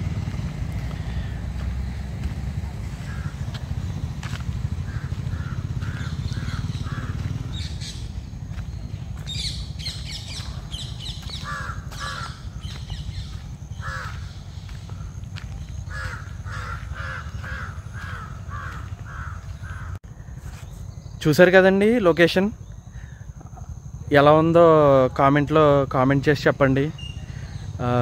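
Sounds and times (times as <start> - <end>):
steady low rumble: 0.0 - 21.2
small birds chirping: 0.0 - 28.0
crow cawing: 0.8 - 1.7, 2.8 - 8.1, 9.2 - 20.0.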